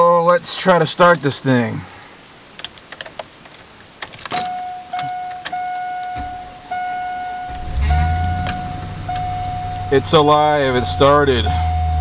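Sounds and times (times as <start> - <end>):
dashboard warning chime: 4.3 - 12.0
starter motor cranking: 7.5 - 11.2
engine fast idling: 7.5 - 12.0.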